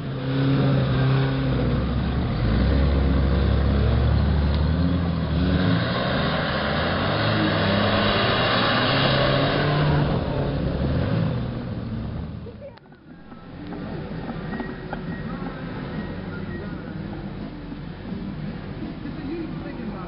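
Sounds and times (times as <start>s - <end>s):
rushing noise: 0.0s - 12.4s
truck engine under load: 0.0s - 19.0s.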